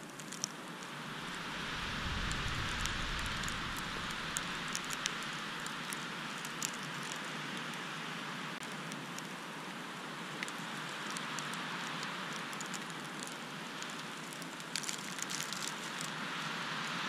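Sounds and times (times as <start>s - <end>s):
wind on microphone: 1.1s - 5.6s
snow ticking on camera: 1.1s - 7.7s.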